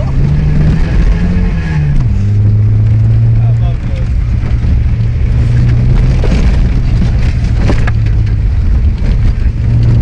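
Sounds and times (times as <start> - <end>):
car engine droning: 0.0 - 10.0
knocks and rattles from bumps: 5.8 - 10.0.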